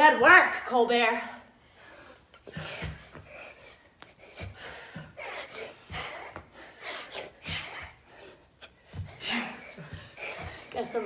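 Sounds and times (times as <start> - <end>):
hard breathing and gasps: 1.6 - 11.0
feet thudding on floor: 2.4 - 11.0.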